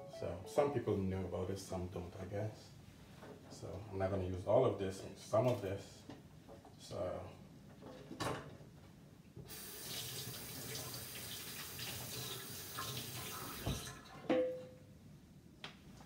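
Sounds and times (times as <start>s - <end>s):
faucet water running into sink: 9.5s - 14.1s.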